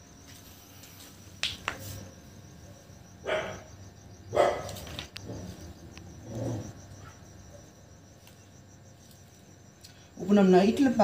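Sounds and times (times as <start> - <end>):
crickets trilling: 0.0 - 11.0
dog barking: 3.2 - 3.7, 4.3 - 4.8.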